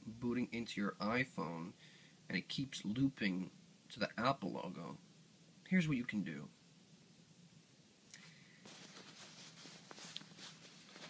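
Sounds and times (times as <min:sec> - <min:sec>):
faint rustle: 0:08.1 - 0:11.0.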